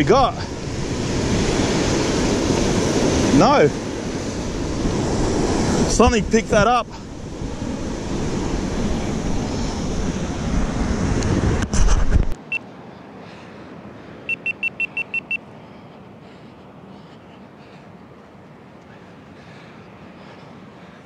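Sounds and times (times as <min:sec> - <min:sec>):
breaking surf: 0:00.0 - 0:12.4
wind buffeting microphone: 0:00.0 - 0:12.4
high electronic beeps: 0:14.3 - 0:15.4.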